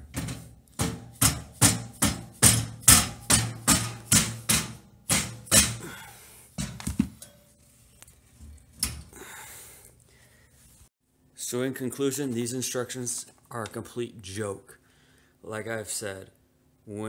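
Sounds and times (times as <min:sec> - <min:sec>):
hammer striking steel: 0:00.0 - 0:06.0.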